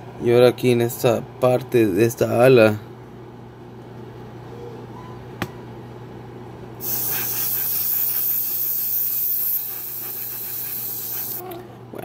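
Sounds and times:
airbrush spraying hiss: 0:06.8 - 0:11.4.

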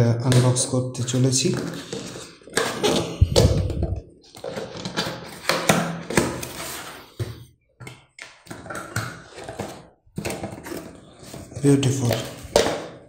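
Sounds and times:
cardboard scraping and rustling: 0:01.4 - 0:07.3, 0:08.6 - 0:12.7.

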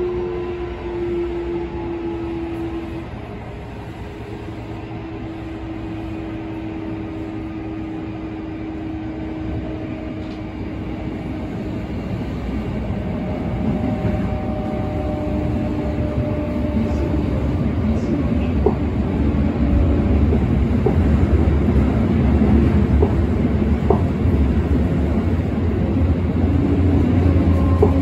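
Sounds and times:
wheels rumbling on rail: 0:00.0 - 0:28.0
train motor whine: 0:13.0 - 0:17.4.

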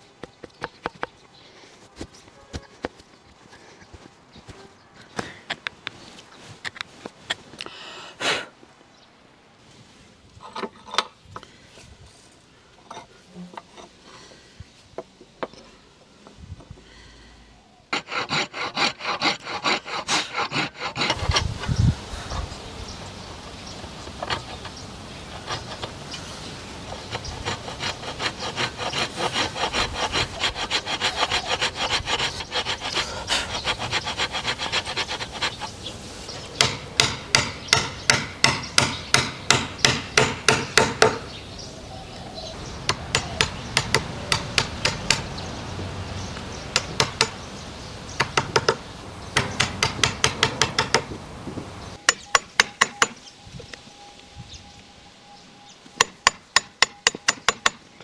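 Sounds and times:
hand saw cutting wood: 0:17.9 - 0:21.8, 0:23.8 - 0:35.8.

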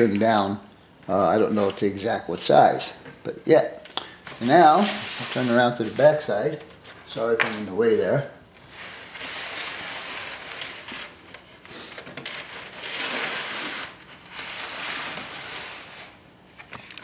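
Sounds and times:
model base scraping on workbench: 0:04.4 - 0:06.2, 0:08.7 - 0:11.2, 0:12.2 - 0:16.2.

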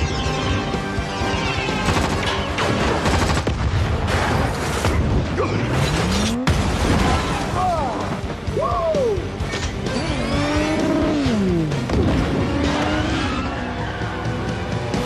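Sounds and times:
dramatic orchestral score: 0:00.0 - 0:06.0, 0:06.6 - 0:15.0
gunfire: 0:01.7 - 0:05.2.

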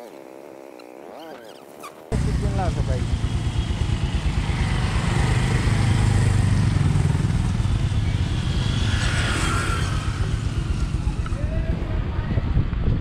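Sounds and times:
road and wind noise: 0:01.0 - 0:13.0
vehicle engine rumbling: 0:02.1 - 0:12.1.

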